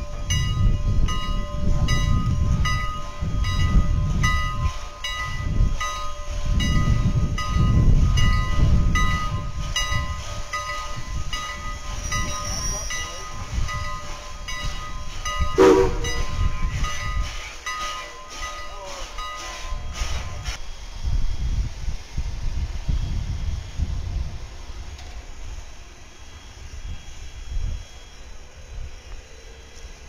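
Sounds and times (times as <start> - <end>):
steam locomotive bell ringing: 0.0 - 20.6
steam locomotive chuffing: 0.0 - 30.0
steam whistle blast: 15.6 - 16.5.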